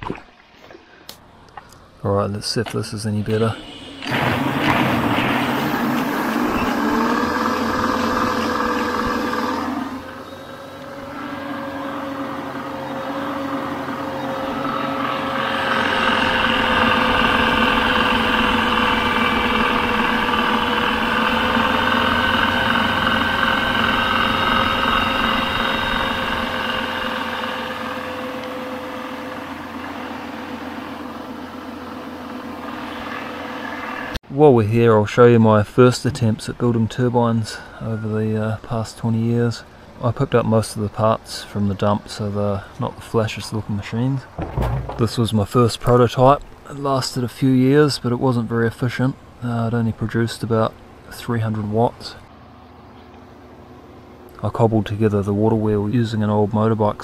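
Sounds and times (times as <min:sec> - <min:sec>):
generator whine: 0:00.7 - 0:34.3, 0:35.3 - 0:57.0
water jet rushing: 0:03.3 - 0:10.2, 0:44.3 - 0:45.6.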